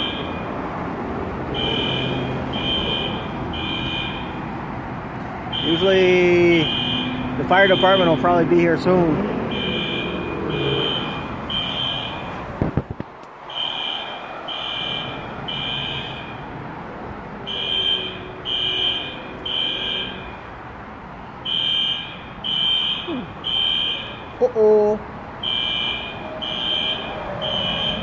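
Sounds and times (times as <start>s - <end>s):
fire alarm beeping: 0.0s - 0.6s, 1.6s - 4.4s, 5.5s - 8.3s, 9.5s - 12.4s, 13.5s - 16.5s, 17.4s - 20.5s, 21.4s - 24.4s, 25.4s - 28.0s.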